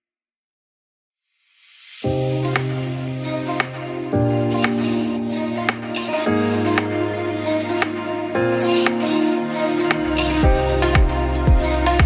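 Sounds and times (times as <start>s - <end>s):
rising whoosh of hiss: 1.3s - 3.4s
background music: 2.1s - 12.0s.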